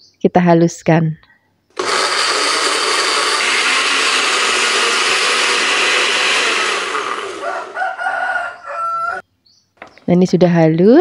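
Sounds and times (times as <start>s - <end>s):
electric blender whirring: 1.8s - 9.2s.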